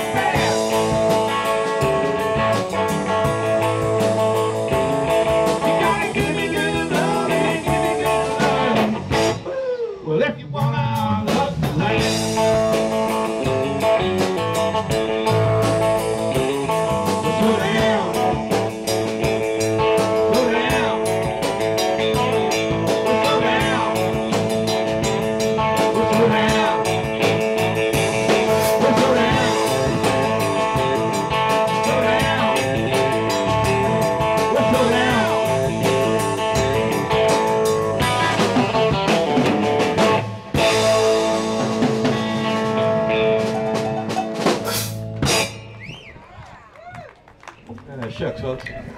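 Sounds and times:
electric guitar lead with bent notes: 0:00.0 - 0:45.9
bass guitar: 0:00.0 - 0:48.9
drums: 0:00.0 - 0:48.9.

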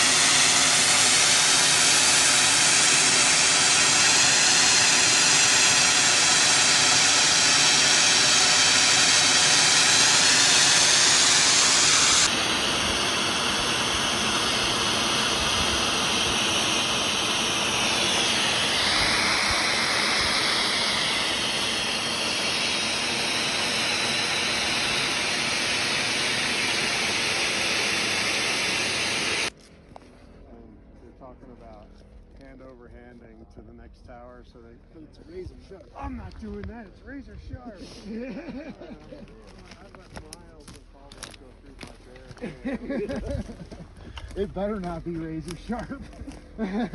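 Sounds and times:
snowmaking guns hissing: 0:00.0 - 0:29.5, 0:37.1 - 0:40.0, 0:42.2 - 0:46.9.

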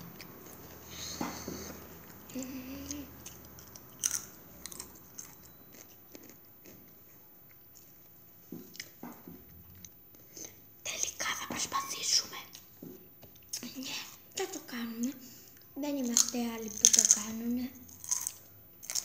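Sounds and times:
chips being crunched: 0:16.0 - 0:17.3, 0:17.9 - 0:19.0.

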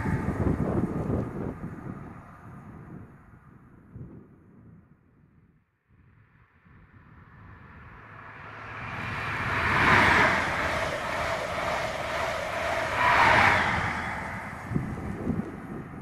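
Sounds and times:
diesel train engine passing: 0:00.0 - 0:02.6, 0:07.2 - 0:16.0
wheel and rail noise: 0:00.0 - 0:02.9, 0:07.2 - 0:16.0.

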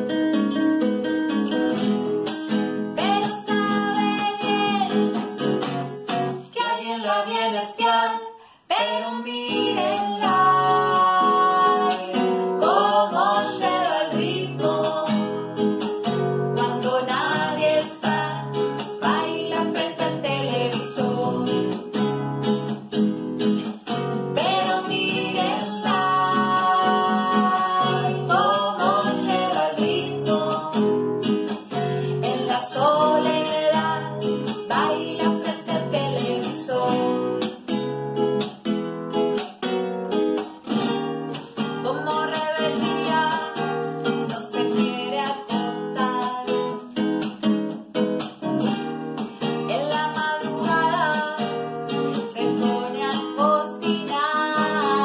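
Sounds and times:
classical guitar: 0:00.0 - 0:55.0
man and woman singing: 0:02.9 - 0:05.5, 0:06.4 - 0:22.1, 0:24.2 - 0:37.8, 0:41.4 - 0:46.9, 0:49.4 - 0:55.0.

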